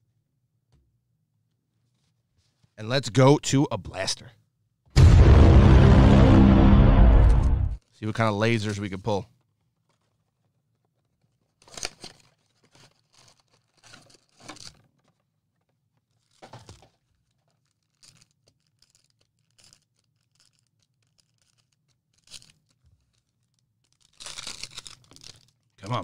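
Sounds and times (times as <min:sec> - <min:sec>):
packaging rustling: 0:11.2 - 0:15.2, 0:16.1 - 0:25.8
packaging ripping: 0:11.6 - 0:14.7, 0:17.4 - 0:25.7.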